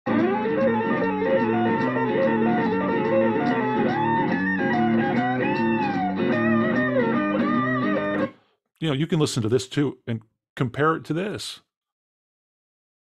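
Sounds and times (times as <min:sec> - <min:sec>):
bluesy electric guitar: 0:00.1 - 0:08.3.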